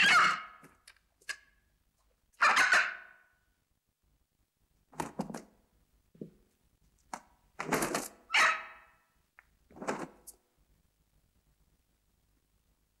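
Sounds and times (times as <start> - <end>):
rooster squawking: 0.0 - 0.6, 2.4 - 3.2, 8.3 - 8.9.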